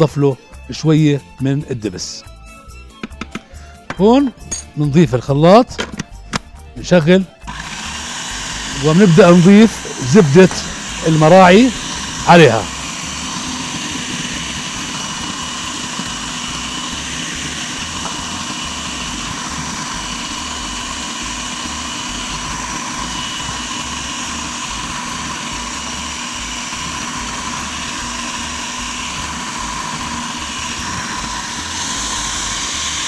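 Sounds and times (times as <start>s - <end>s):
food processor motor running: 6.9s - 33.0s.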